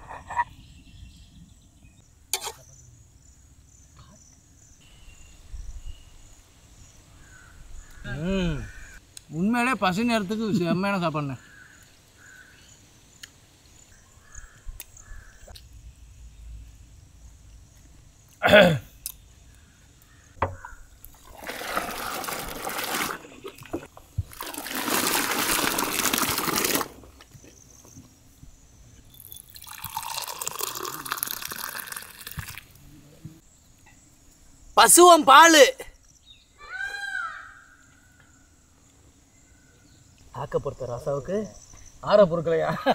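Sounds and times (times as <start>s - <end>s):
milk pouring and splashing: 21.0s - 27.2s, 29.2s - 32.8s.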